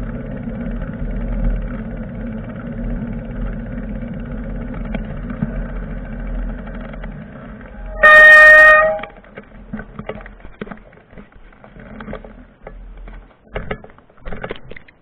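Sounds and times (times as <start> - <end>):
low engine hum: 0.0 - 13.9
vehicle horn blast: 7.8 - 9.2.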